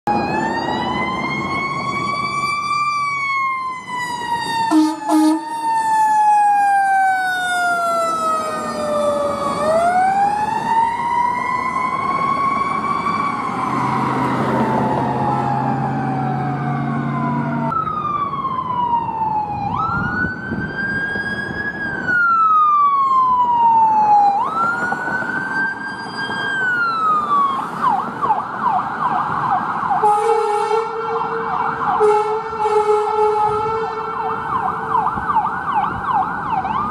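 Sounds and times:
emergency siren wailing: 0.0 - 36.9
vehicle horn blast: 4.7 - 5.4, 30.0 - 31.2, 32.0 - 34.2.

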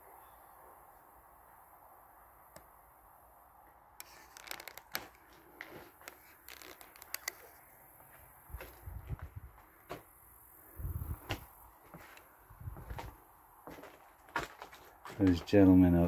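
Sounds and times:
footsteps on debris-strewn floor: 5.2 - 10.2, 11.0 - 15.8.

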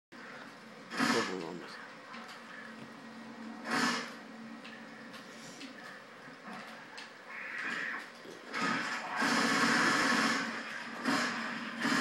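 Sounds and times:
noisy burst: 0.1 - 4.6, 7.2 - 12.0.

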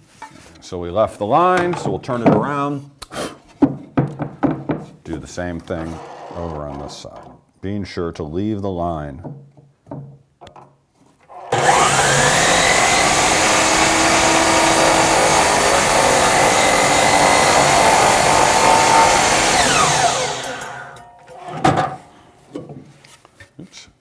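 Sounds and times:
saw blade cutting wood: 11.4 - 21.6
miter saw motor whine: 11.5 - 21.0.

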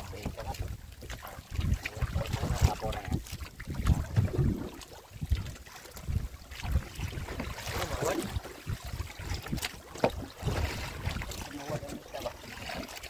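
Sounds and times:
wind buffeting microphone: 0.0 - 12.7
water splashing around boat: 0.0 - 13.0
sharp knocks on boat: 9.5 - 10.6.

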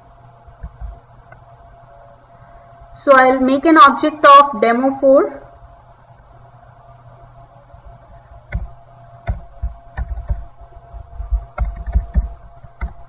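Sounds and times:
faint steady hum: 0.0 - 13.0
keyboard typing clicks: 8.5 - 10.5, 11.2 - 13.0.

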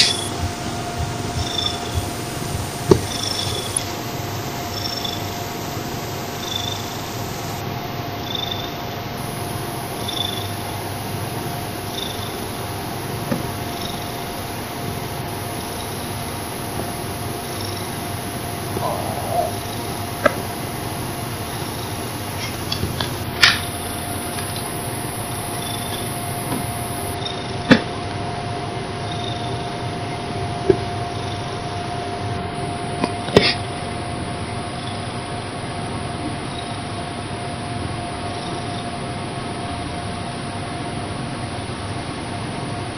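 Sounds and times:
thin tone and hiss: 1.3 - 27.4
cat purring: 17.8 - 20.8.

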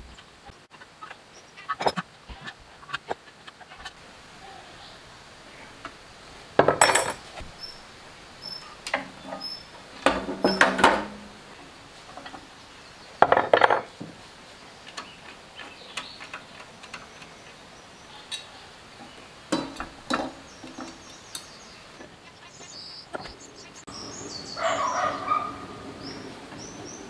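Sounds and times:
bird calling: 3.7 - 5.8, 7.2 - 13.6, 14.6 - 27.0
metal parts clanking and clicking: 6.6 - 7.2, 8.8 - 11.3, 19.5 - 21.5.

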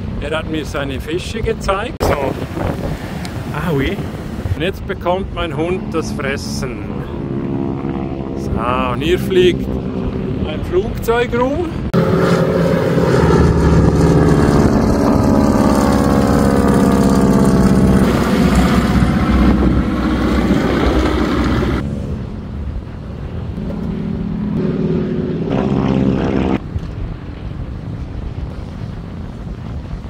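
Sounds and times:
propeller plane flying overhead: 5.3 - 26.6.

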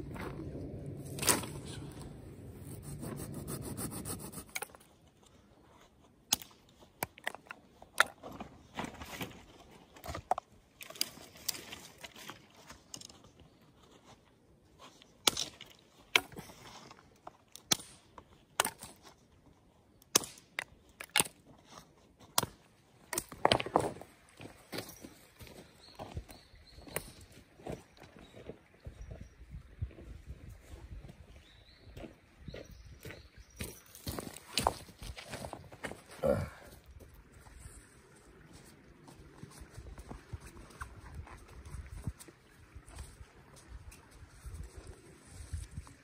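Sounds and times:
sticks rustling and scraping: 0.1 - 19.8.

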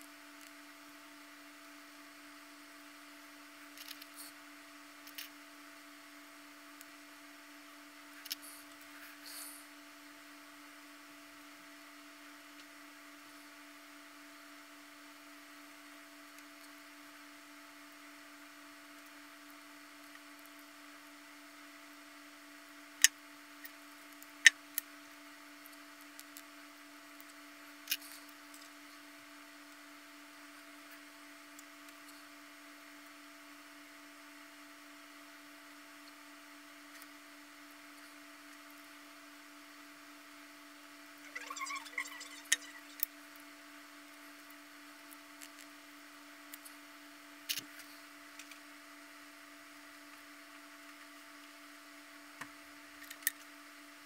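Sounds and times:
electrical hum: 0.0 - 54.0.

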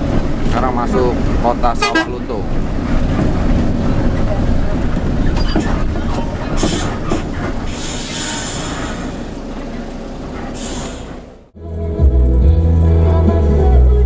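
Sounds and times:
bus engine and road rumble: 0.0 - 14.0.

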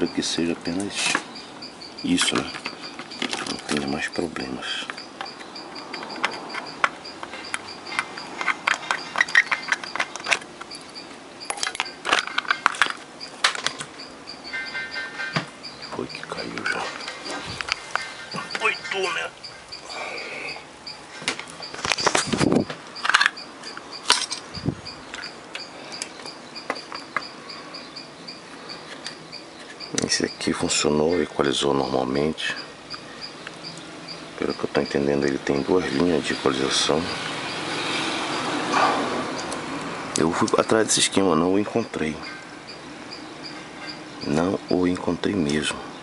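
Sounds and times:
faint high chirp: 0.0 - 12.6, 14.0 - 39.6, 40.3 - 44.9
circuit board parts knocking and rattling: 0.7 - 4.2, 4.8 - 18.8, 20.9 - 28.1.

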